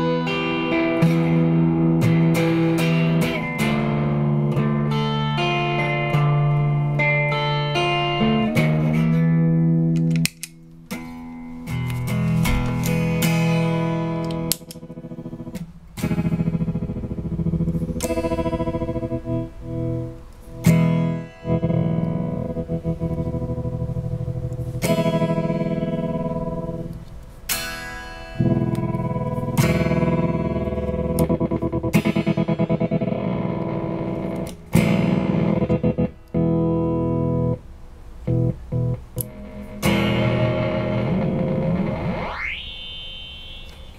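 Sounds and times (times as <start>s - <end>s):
distorted electric guitar chords: 0.0s - 43.9s.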